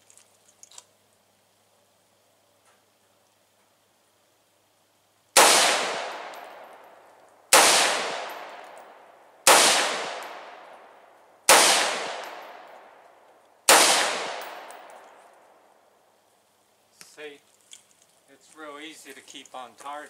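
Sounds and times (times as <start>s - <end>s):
rifle shots with echo: 5.4s - 6.8s, 7.5s - 13.0s, 13.7s - 15.2s.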